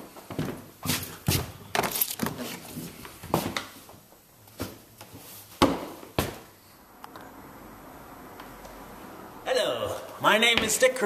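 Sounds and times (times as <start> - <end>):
sharp knocks and thuds: 5.6 - 6.4.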